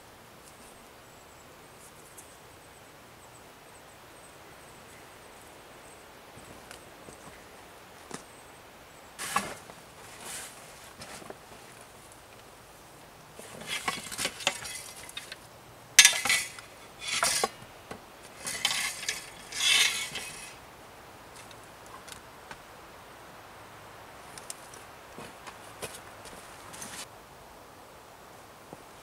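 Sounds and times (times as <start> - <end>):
gear rustling: 13.4 - 20.6, 24.6 - 27.1
light metallic clinks: 16.0 - 17.6.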